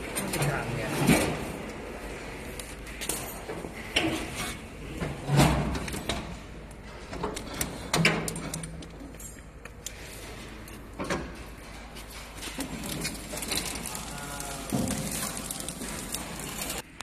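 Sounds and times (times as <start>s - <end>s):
metal knocks and clatter: 2.9s - 13.9s.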